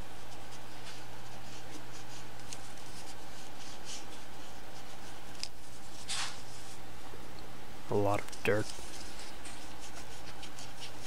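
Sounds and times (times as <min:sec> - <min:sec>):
steady low hum: 0:00.0 - 0:11.0
cotton swab scratching metal: 0:08.4 - 0:11.0.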